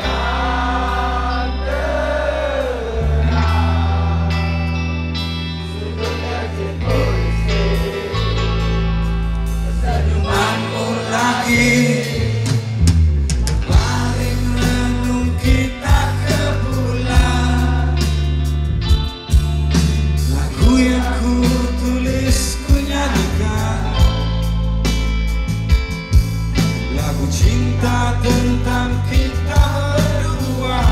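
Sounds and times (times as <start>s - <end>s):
live rock band playing: 0.0s - 30.9s
person singing: 13.6s - 18.2s.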